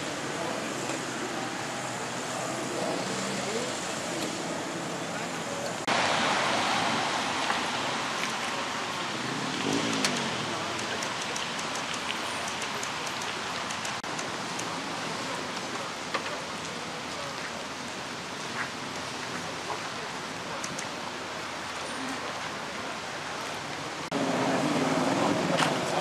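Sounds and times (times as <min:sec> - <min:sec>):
outdoor background hiss: 0:00.0 - 0:26.0
faint clicks: 0:09.9 - 0:14.7, 0:20.6 - 0:20.9.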